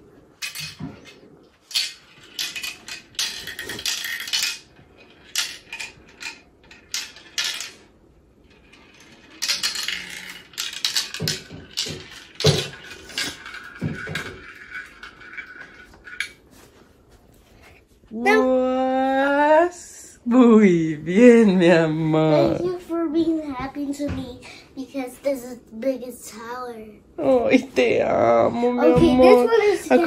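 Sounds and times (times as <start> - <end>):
marbles clicking and clattering: 0.4 - 16.5.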